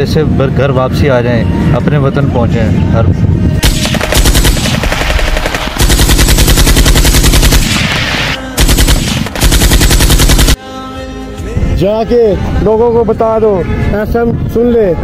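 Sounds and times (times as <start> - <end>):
machine-gun fire: 3.6 - 10.6.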